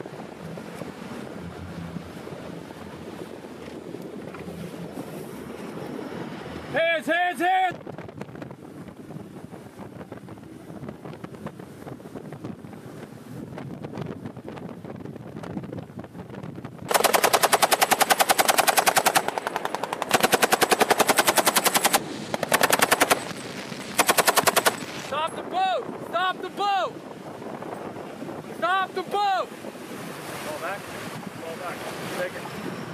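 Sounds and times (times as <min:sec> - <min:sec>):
fast boat running: 0:00.0 - 0:32.9
wind noise: 0:00.0 - 0:32.9
machine gun bursts: 0:16.9 - 0:25.1
rushing water: 0:28.0 - 0:32.9.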